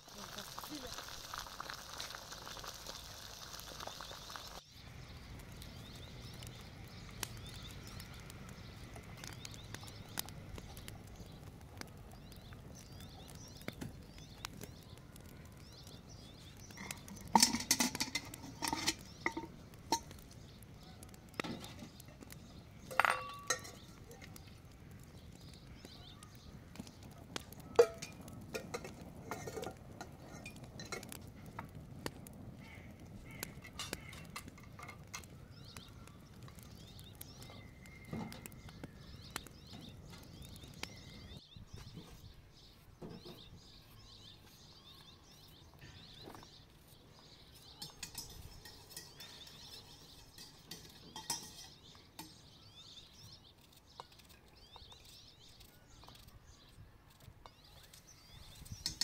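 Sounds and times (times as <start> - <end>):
metal dishes clinking: 16.8 - 20.1, 22.9 - 23.9, 27.8 - 31.1, 47.8 - 52.4.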